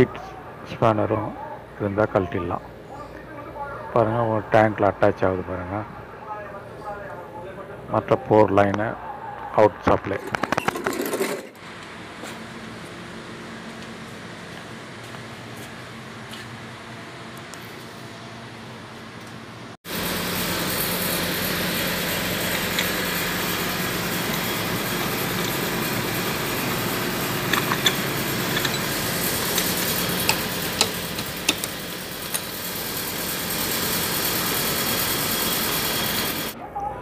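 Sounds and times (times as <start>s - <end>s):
machinery hiss: 19.9s - 36.6s
sharp metallic clicks: 27.4s - 32.6s.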